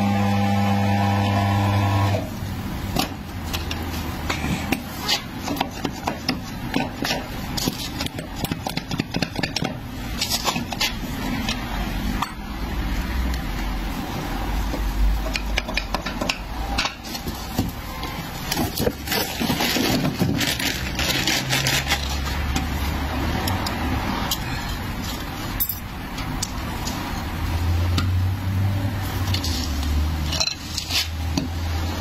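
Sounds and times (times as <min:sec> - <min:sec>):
metal clinks and knocks: 0:25.5 - 0:26.4.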